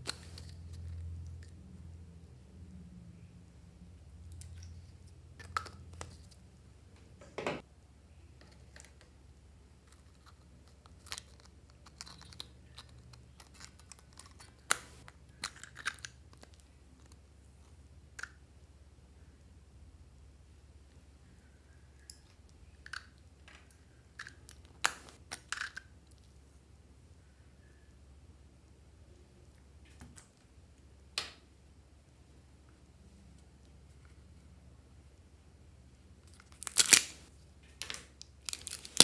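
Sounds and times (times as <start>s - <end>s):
faint hum: 0.0s - 10.4s, 26.2s - 36.5s.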